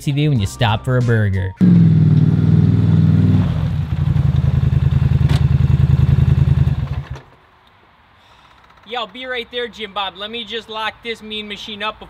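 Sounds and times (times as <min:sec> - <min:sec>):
atv engine running: 0:01.6 - 0:07.3.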